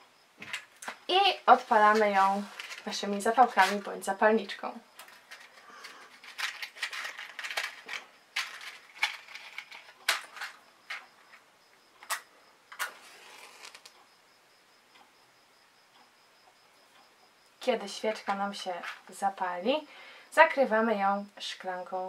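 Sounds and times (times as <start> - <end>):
matchbox rattling: 5.0 - 11.0, 12.8 - 13.9
match being struck: 12.8 - 13.9.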